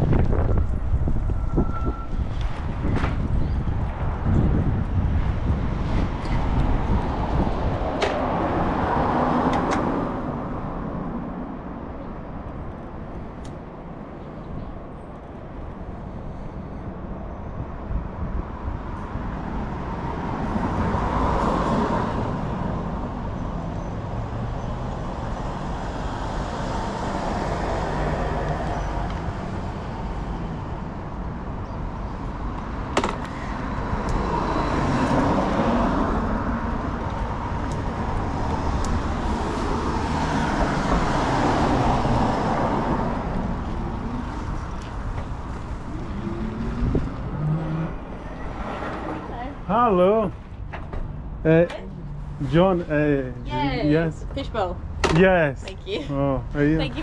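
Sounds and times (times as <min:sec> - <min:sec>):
cars passing: 0:00.0 - 0:57.0
road traffic rumble: 0:00.0 - 0:57.0.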